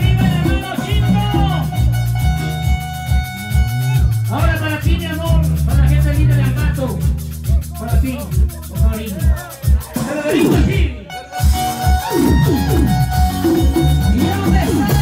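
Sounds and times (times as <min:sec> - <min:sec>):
melody line: 0:00.0 - 0:04.4, 0:11.1 - 0:15.0
live latin dance band: 0:00.0 - 0:15.0.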